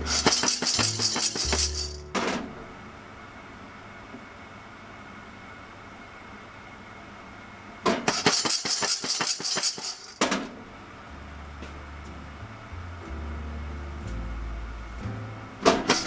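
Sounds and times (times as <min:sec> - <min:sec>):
coffee beans rattling in saucepan: 0:00.1 - 0:02.0, 0:08.2 - 0:10.2.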